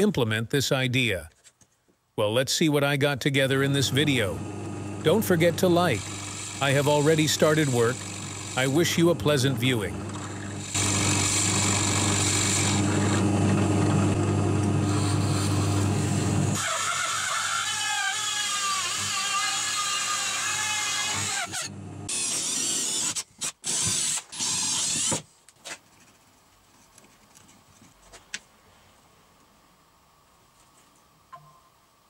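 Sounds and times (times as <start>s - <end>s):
drill press boring into wood: 5.0s - 25.2s
high squeal of cutter in wood: 16.6s - 25.2s.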